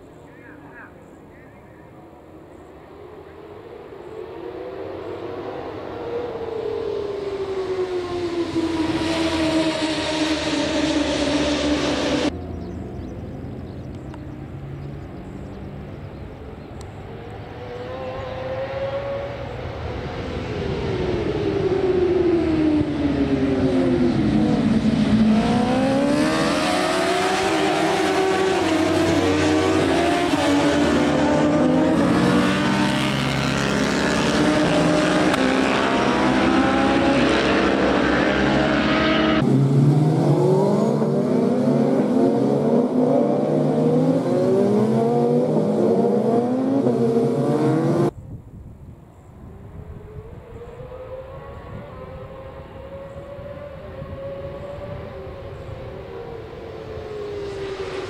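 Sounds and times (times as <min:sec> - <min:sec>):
racing motorcycles revving past: 0:02.9 - 0:48.2, 0:49.8 - 0:58.0.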